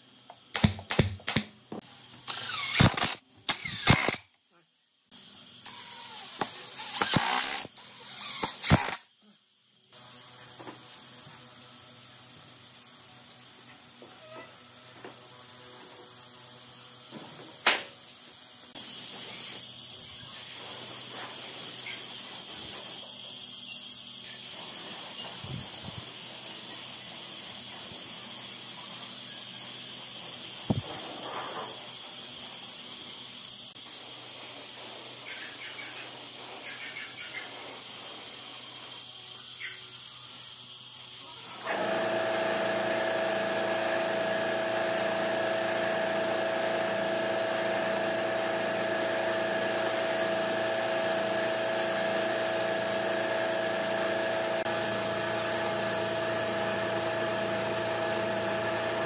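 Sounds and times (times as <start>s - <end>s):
sharp click: 0.5s - 1.5s
power drill driving screw: 2.2s - 4.2s, 5.6s - 9.0s
spray gun hissing: 18.7s - 23.0s.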